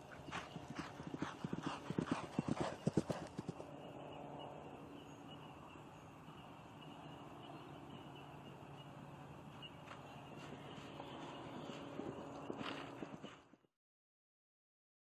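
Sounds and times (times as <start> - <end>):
hoofbeats on turf: 0.0 - 3.6, 9.6 - 13.6.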